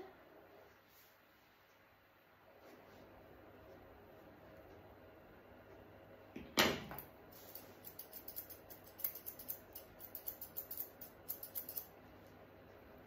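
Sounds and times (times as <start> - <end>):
scissors snipping hair: 7.5 - 11.9.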